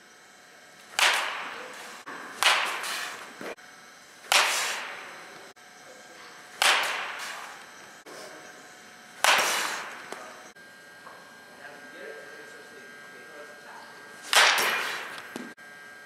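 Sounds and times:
baseball bat cracking balls: 0.8s - 5.5s, 6.2s - 10.5s, 14.2s - 15.6s.

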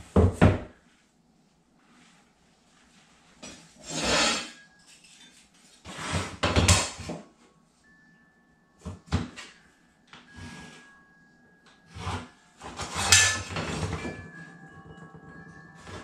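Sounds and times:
metal square knocking and scraping: 11.9s - 14.2s.

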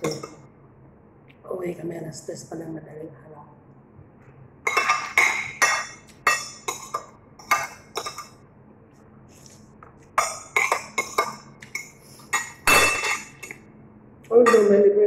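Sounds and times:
cutlery clinking on a plate: 4.7s - 8.4s, 10.2s - 13.7s, 14.4s - 14.8s.

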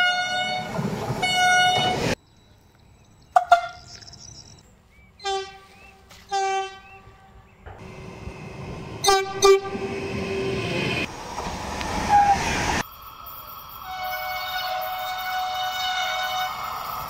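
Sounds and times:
train horn blasts: 0.0s - 2.0s, 5.2s - 7.5s, 9.0s - 10.0s, 13.9s - 16.7s
train passing rush: 0.0s - 3.8s, 4.5s - 17.0s.

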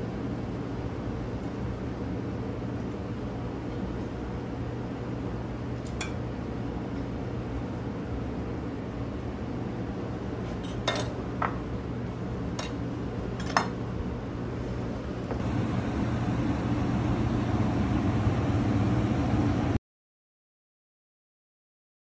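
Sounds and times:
steady low hum: 0.0s - 19.8s
dishes clinking: 10.6s - 11.6s, 12.6s - 12.8s, 13.4s - 13.8s.

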